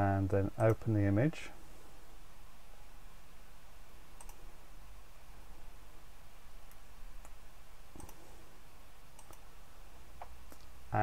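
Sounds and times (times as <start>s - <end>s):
low room hum: 0.0s - 11.0s
computer mouse clicks: 0.6s - 0.8s, 4.2s - 4.5s, 6.6s - 8.3s, 9.1s - 9.5s, 10.2s - 10.8s.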